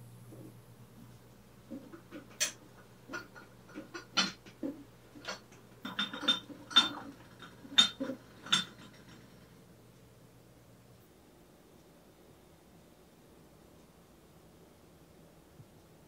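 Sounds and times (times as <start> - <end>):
glass and ceramic clinking: 2.0 - 9.5.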